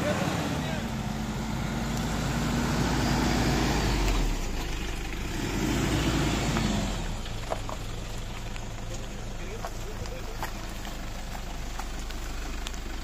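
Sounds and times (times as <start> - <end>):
suv engine revving hard: 0.0 - 7.3.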